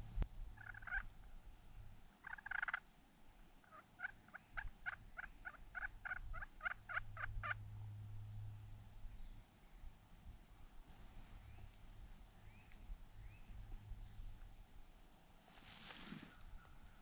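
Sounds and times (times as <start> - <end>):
faint turkey yelping: 0.6 - 1.2, 2.2 - 2.8, 3.6 - 7.6.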